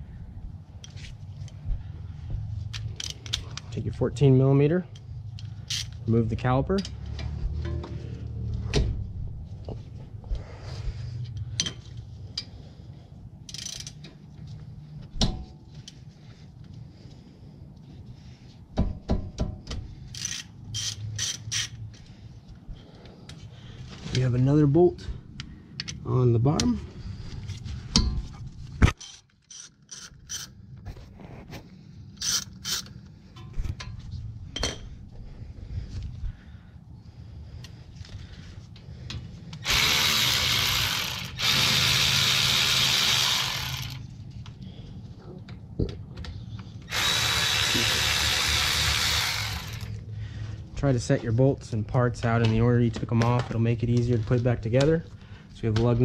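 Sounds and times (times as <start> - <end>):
steady low hum: 0.0 - 56.0
hand tools scraping and clicking: 2.7 - 3.8, 4.9 - 6.0, 13.4 - 14.3, 19.6 - 22.1, 28.9 - 34.9
ratchet rasping: 13.5 - 14.0, 20.0 - 21.8, 29.0 - 30.6, 32.2 - 33.0, 39.6 - 44.1, 46.9 - 50.0
ratchet metallic clicks: 13.5 - 14.1, 20.1 - 21.8, 29.0 - 30.5, 32.2 - 33.5.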